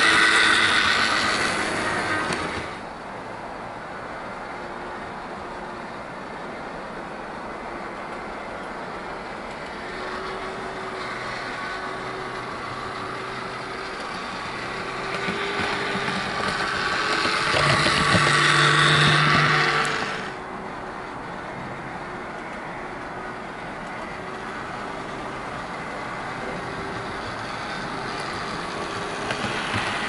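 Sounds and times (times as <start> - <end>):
model train motor humming: 0.0 - 3.0, 7.5 - 21.0, 23.0 - 30.0
wheels running on rails: 0.0 - 30.0.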